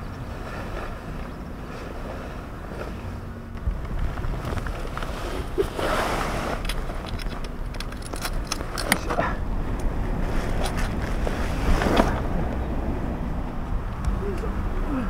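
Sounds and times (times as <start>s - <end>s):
steady low rumble: 0.0s - 15.0s
tent fabric rustling: 3.8s - 7.1s
buckles clicking and jingling: 6.6s - 11.0s.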